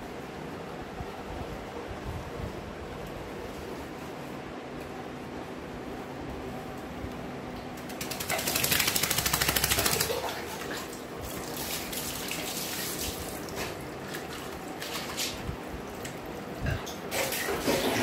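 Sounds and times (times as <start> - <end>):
dog shaking off water: 7.9 - 15.3
water splashing and dripping: 7.9 - 16.2.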